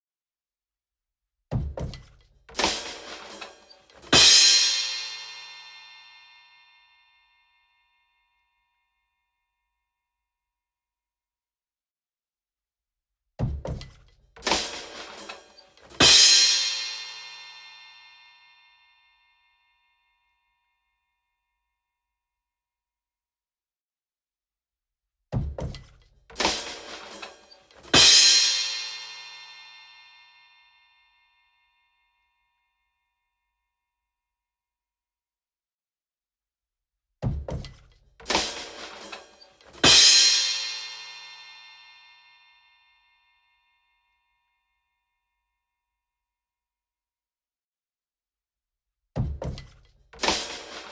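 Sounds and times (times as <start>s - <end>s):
quick drum hits: 1.5s - 4.5s, 13.4s - 16.4s, 25.4s - 28.3s, 37.2s - 40.2s, 49.2s - 50.9s.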